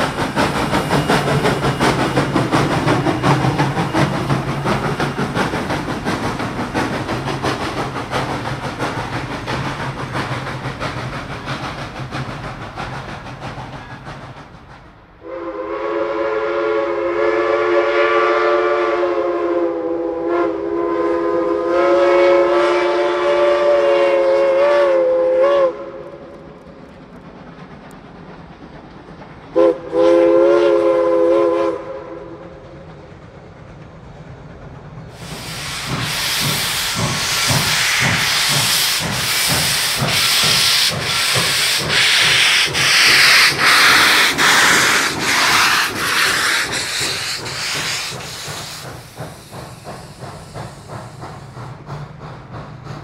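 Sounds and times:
steam hissing from cylinders: 0.0s - 16.0s, 35.0s - 53.0s
locomotive exhaust chuffs: 0.0s - 19.0s, 34.6s - 53.0s
steam locomotive whistle: 15.2s - 26.4s, 29.6s - 32.5s.

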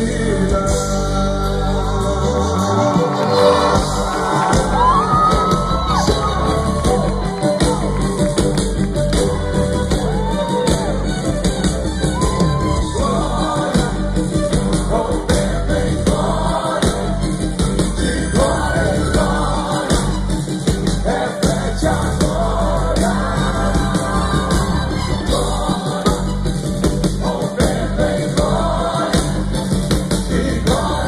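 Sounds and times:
person singing: 0.0s - 8.2s, 12.6s - 20.3s
crowd shouting and singing along: 0.0s - 31.0s
gospel band playing loudly: 0.0s - 31.0s
steady drum beat: 3.8s - 31.0s.

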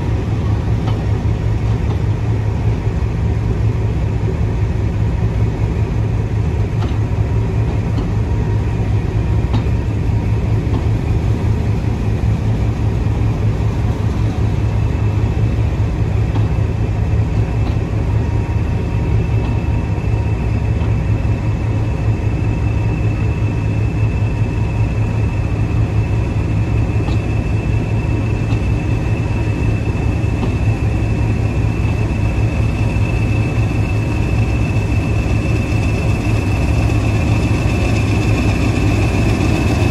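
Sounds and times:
train wheel clicks: 0.0s - 2.4s, 6.6s - 12.4s, 13.1s - 20.0s, 20.7s - 21.3s, 24.8s - 39.9s
train rumbling past: 0.0s - 39.9s.

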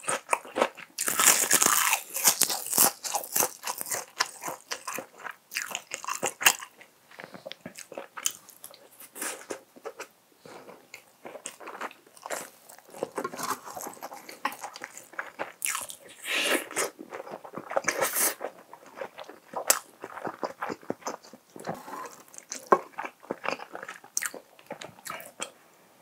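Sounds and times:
wet chewing: 10.9s - 25.5s.

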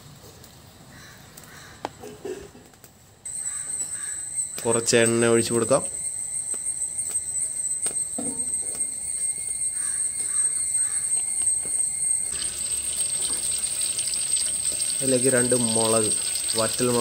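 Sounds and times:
fire crackling and popping: 11.1s - 17.0s.

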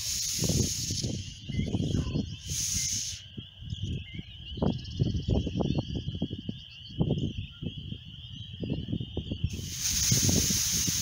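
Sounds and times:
air hissing from hydrant spout: 0.0s - 1.4s, 2.4s - 3.2s, 9.5s - 11.0s.

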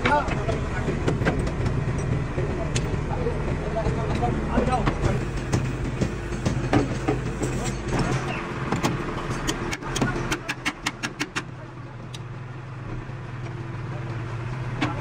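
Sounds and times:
voices: 0.0s - 6.2s, 9.4s - 15.0s
low machine hum: 0.0s - 10.5s.

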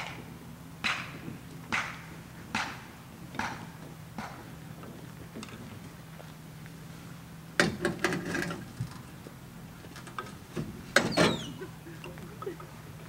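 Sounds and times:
low steady hum: 0.0s - 13.0s
high falling squeak: 11.0s - 11.7s.

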